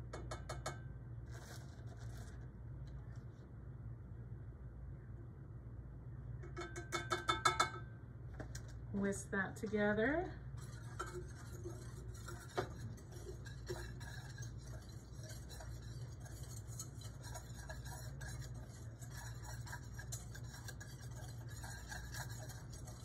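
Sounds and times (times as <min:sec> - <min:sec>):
whisk scraping metal saucepan: 0:09.6 - 0:23.0.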